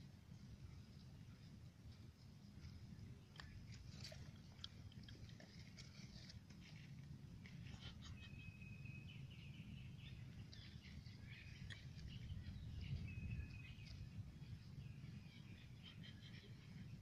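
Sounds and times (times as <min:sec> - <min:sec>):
low steady rumble: 0:00.0 - 0:17.0
bird chirps: 0:07.7 - 0:17.0.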